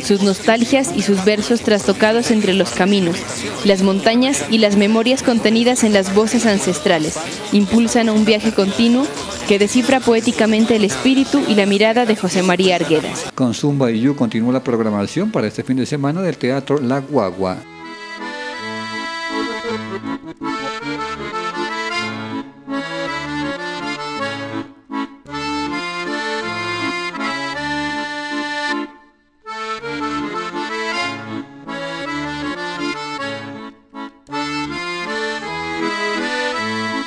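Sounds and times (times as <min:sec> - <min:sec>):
instrumental music with bass line: 0:17.6 - 0:37.0.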